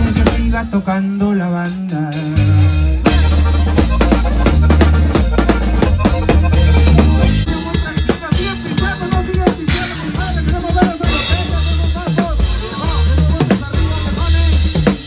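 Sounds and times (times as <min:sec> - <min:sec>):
band music: 0:00.0 - 0:15.0
deep bass line: 0:00.0 - 0:15.0
drum kit beat: 0:00.0 - 0:15.0.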